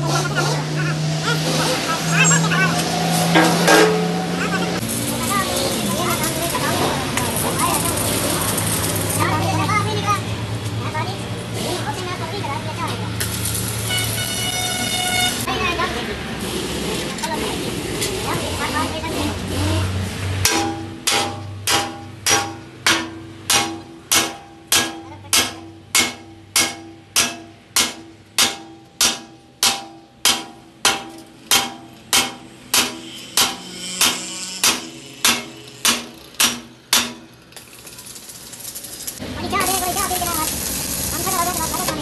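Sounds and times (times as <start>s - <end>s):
sledgehammer striking steel: 3.2s - 4.4s, 20.4s - 37.5s.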